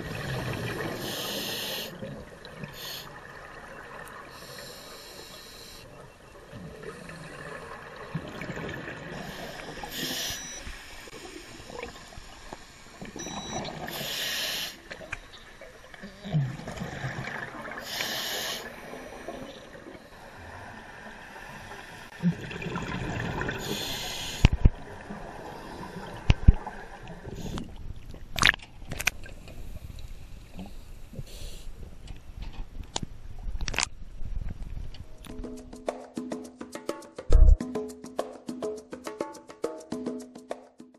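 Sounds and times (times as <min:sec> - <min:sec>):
low watery hiss: 0:00.0 - 0:35.6
exhaled bubbles rushing: 0:22.2 - 0:23.7.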